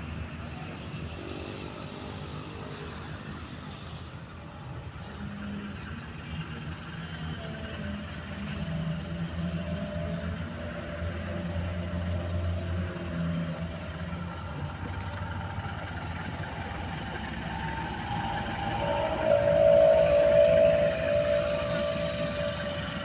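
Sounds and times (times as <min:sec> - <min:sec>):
locomotive engine idling: 0:04.8 - 0:23.0
locomotive horn: 0:14.5 - 0:23.0.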